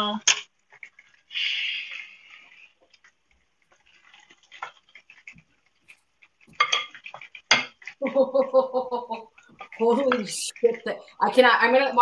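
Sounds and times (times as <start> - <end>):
utensil scraping cookware: 0.2 - 8.1, 9.1 - 12.0
utensils clinking on cookware: 5.9 - 8.0.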